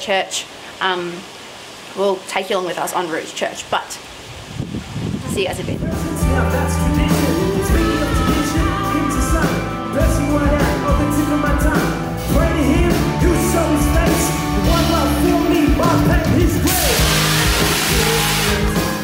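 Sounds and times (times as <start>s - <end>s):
person singing into microphone: 5.3s - 19.0s
amplified music with heavy bass: 5.7s - 19.0s.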